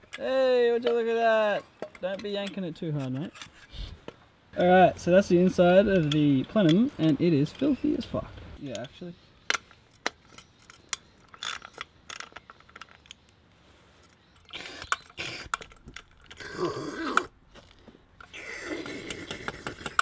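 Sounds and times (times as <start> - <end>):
metal clicks: 0.0 - 3.7, 4.6 - 13.4.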